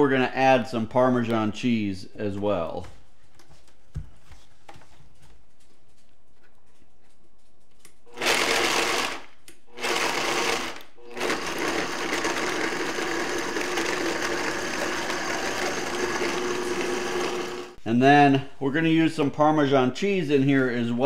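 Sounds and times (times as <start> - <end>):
blender grinding: 8.1 - 17.8.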